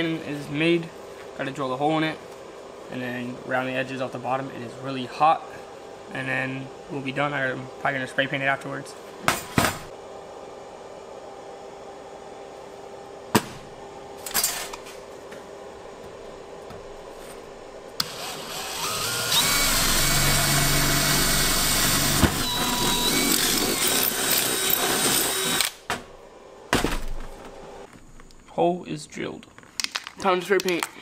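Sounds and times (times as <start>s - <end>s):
drill boring into metal: 18.0s - 25.8s.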